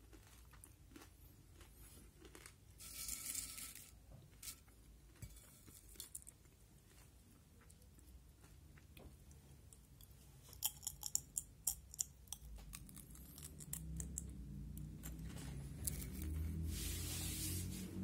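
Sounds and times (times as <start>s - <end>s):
potato chip crunching: 0.0s - 3.9s.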